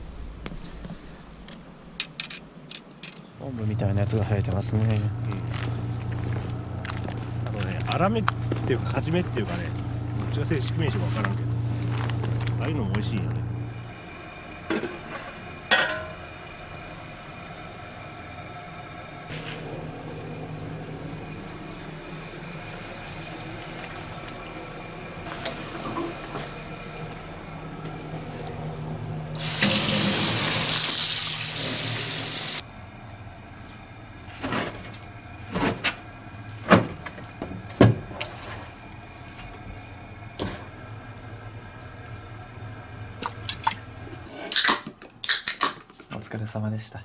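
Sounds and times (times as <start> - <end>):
steady hum: 0.0 - 44.4
water pouring into a steel sink: 29.4 - 32.6.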